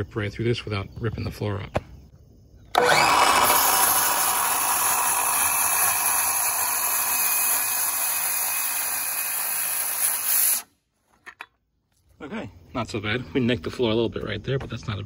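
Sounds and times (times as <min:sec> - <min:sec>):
circular saw cutting wood: 0:02.7 - 0:10.7.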